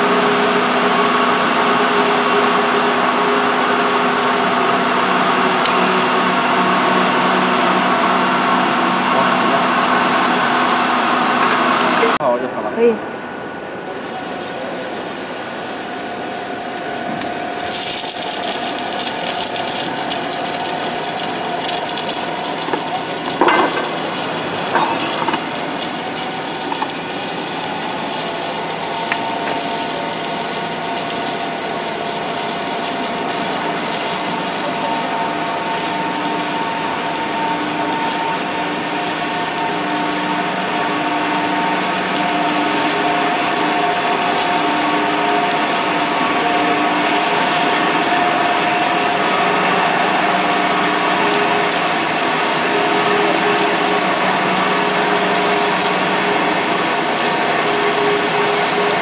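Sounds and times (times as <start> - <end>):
whining welding machine drive: 0.0 - 12.2, 13.8 - 59.0
welding arc hissing: 13.8 - 59.0.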